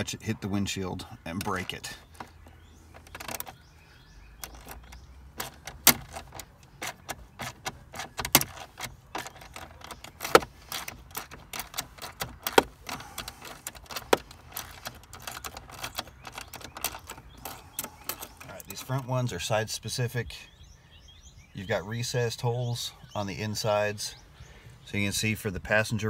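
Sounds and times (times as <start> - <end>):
sharp metallic clicks and knocks: 1.3 - 3.6, 4.4 - 19.0
socket ratchet clicking: 2.2 - 3.6, 4.4 - 18.5.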